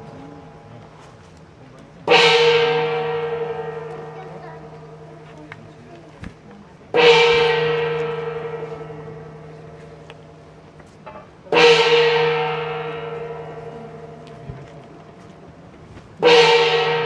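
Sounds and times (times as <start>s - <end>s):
gong ringing: 2.0s - 5.3s, 6.9s - 10.5s, 11.5s - 14.6s, 16.2s - 17.0s.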